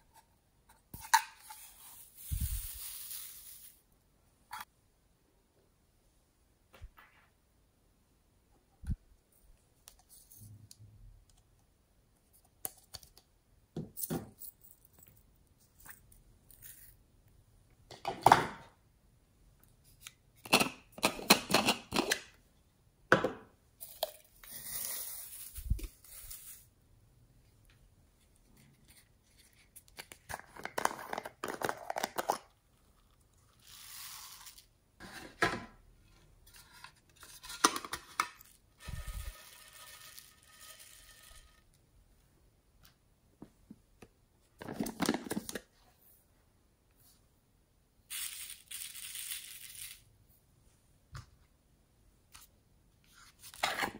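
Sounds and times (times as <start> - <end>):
plastic containers clicking and knocking: 44.6 - 45.7.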